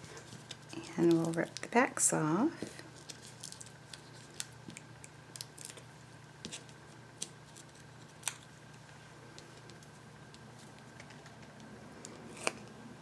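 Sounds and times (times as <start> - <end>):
paper ticks and crinkles: 0.1 - 1.8, 3.0 - 5.8.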